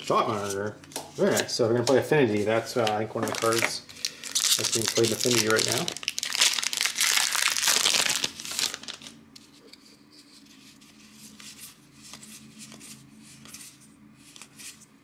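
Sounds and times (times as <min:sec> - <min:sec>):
cards clicking and rustling: 0:02.8 - 0:09.1
wrapper crinkling as torn open: 0:03.2 - 0:09.2.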